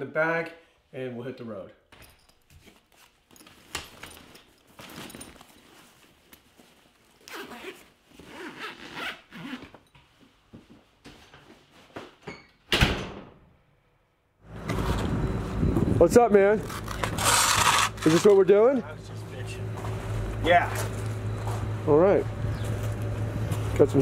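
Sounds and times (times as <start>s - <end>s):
zipper of bag being pulled: 7.2s - 9.7s, 16.6s - 18.3s
door shutting with thud: 12.7s - 13.4s.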